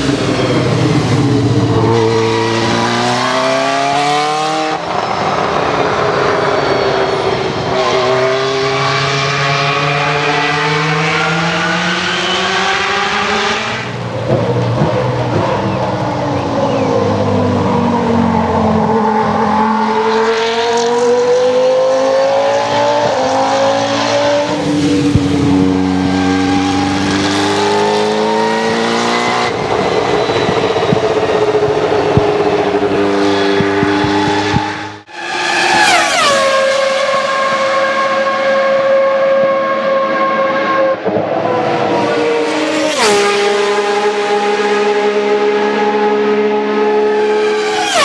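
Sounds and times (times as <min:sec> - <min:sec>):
racing car engine accelerating: 0:00.0 - 0:48.0
racing car engine high revs: 0:00.0 - 0:48.0.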